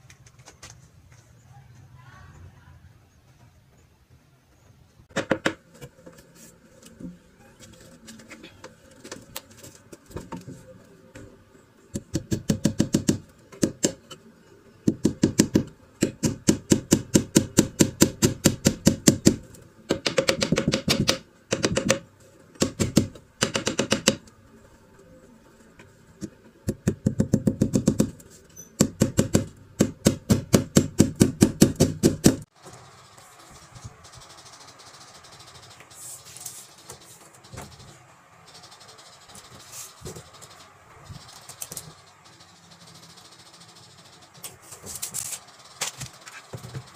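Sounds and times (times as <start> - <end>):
hammer striking wood: 12.0 - 14.0, 14.9 - 22.0, 22.6 - 24.2, 28.8 - 32.4.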